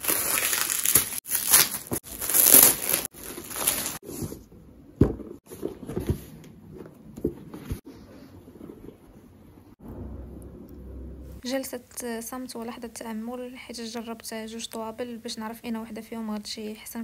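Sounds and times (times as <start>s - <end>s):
plastic film crinkling: 0.0s - 4.0s.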